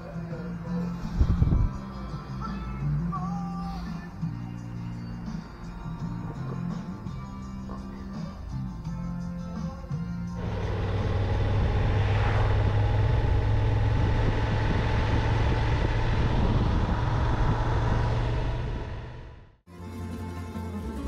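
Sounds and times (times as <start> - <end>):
road and wind noise: 0.9 - 2.4, 10.3 - 19.6
motorcycle engine running: 10.4 - 19.6.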